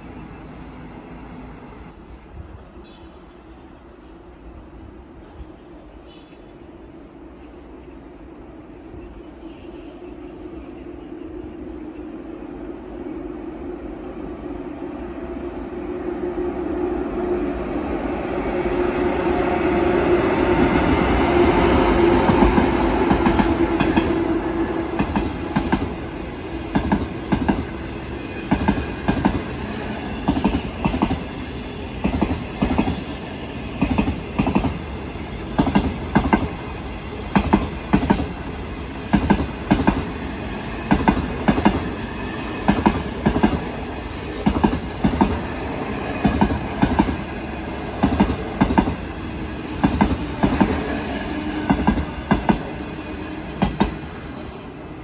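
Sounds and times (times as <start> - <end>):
train hum: 0.0 - 55.0
train rumble: 0.0 - 55.0
train wheels clickety-clack: 19.4 - 54.1.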